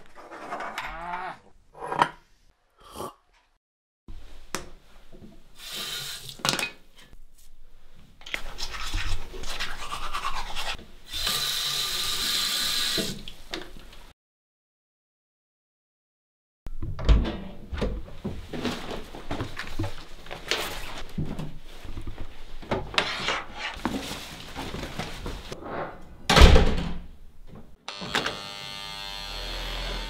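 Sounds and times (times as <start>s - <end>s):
door thunk: 26.3s - 27.1s.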